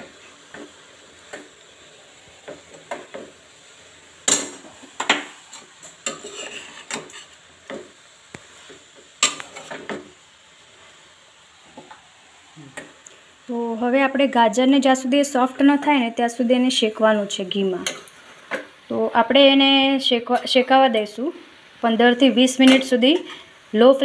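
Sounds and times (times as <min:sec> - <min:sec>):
metal spatula scraping a pan: 0:05.4 - 0:07.4, 0:08.7 - 0:10.0.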